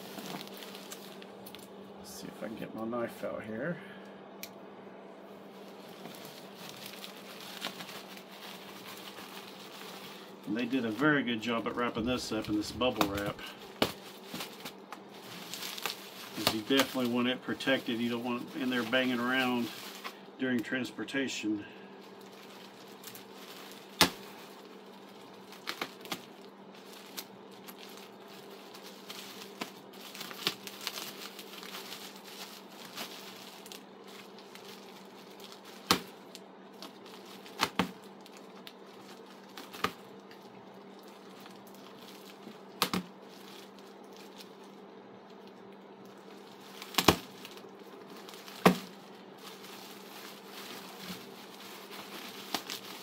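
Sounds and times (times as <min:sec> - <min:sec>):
bubble wrap popping: 0:00.0 - 0:01.6, 0:05.6 - 0:11.1, 0:11.8 - 0:20.2, 0:22.0 - 0:44.6, 0:45.3 - 0:53.0
plastic crinkling: 0:00.0 - 0:01.8, 0:05.4 - 0:20.8, 0:21.6 - 0:53.0
steady low hum: 0:00.0 - 0:53.0
knife cutting bubble wrap: 0:37.3 - 0:38.0, 0:46.8 - 0:47.6, 0:50.6 - 0:53.0.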